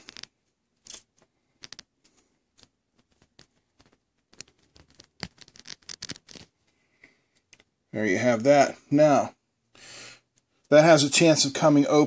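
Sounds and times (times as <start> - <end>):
plastic connector clicks and rustles: 0.0 - 1.9.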